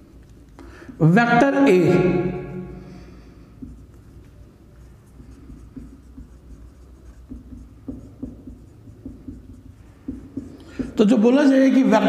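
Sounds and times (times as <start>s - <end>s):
marker pen writing on whiteboard: 0.0s - 1.2s, 3.4s - 12.0s.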